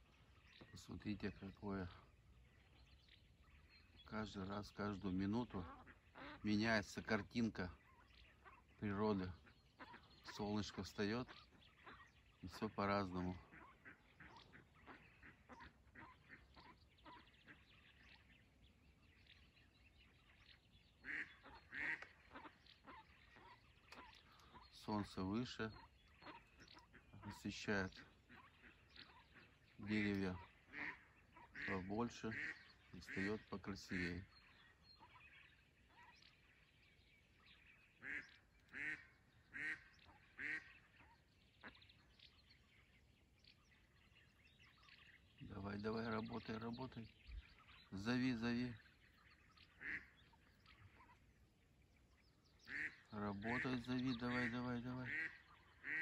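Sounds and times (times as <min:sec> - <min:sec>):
duck quacking: 0:05.2 - 0:17.8, 0:21.0 - 0:35.3, 0:38.0 - 0:41.8, 0:49.6 - 0:51.3, 0:52.6 - 0:56.0.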